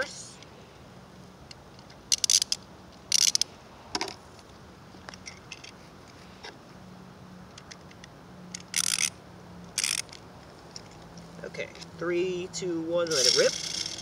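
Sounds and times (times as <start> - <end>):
plastic spinning tops clicking and rattling: 8.6 - 9.1, 13.1 - 14.0.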